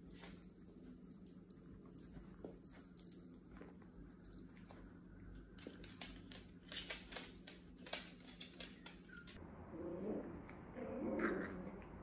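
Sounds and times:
dog claws clicking on hardwood floor: 5.5 - 9.4.

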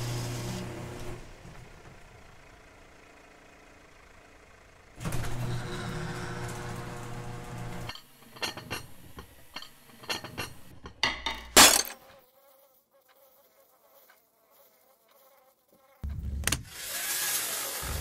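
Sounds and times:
garage door rumble: 5.0 - 7.9
dishes clinking: 7.9 - 12.0
kitchen machinery clicks and knocks: 7.9 - 12.0.

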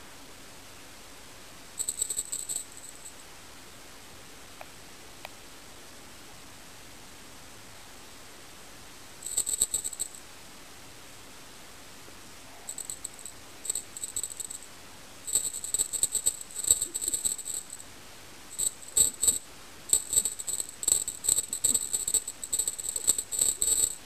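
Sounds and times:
small bell jingling: 1.8 - 3.2, 9.2 - 10.2, 12.7 - 14.7, 15.3 - 17.8, 18.6 - 24.0.

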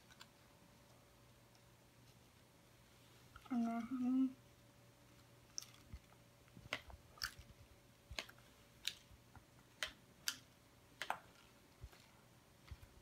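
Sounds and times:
foil party hats clicking and crinkling: 0.0 - 0.5, 5.0 - 13.0.

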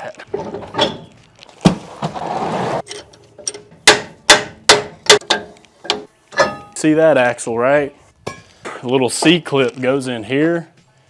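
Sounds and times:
rushing scraping noise: 1.8 - 2.8
hammer striking metal hub: 2.9 - 6.8.

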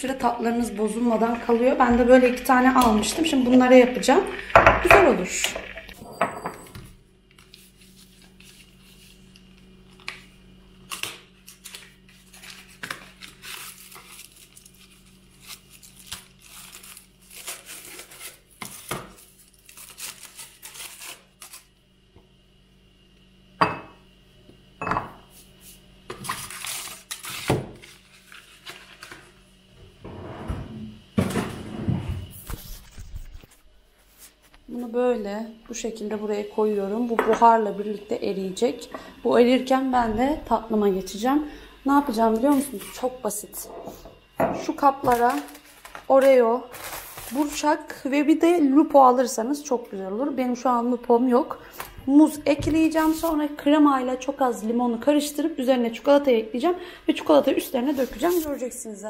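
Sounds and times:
packaging rustling: 10.9 - 21.6, 26.2 - 29.3, 45.1 - 47.6.

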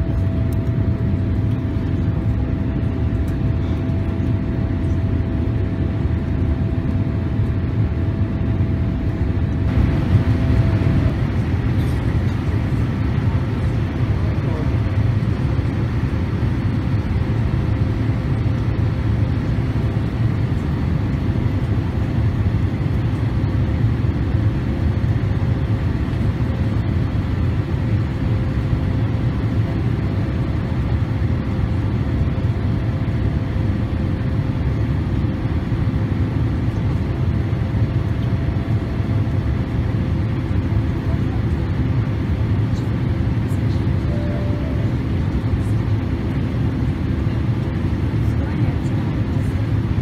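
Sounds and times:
jet engines rumbling: 0.0 - 50.0
faint steady hum: 33.9 - 50.0.

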